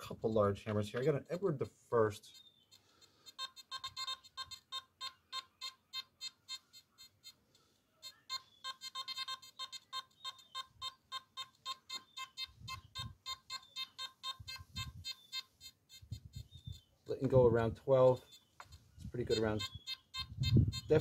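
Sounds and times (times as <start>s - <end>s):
metal detector short beeps: 3.3s - 7.4s, 8.0s - 16.9s, 19.2s - 21.0s.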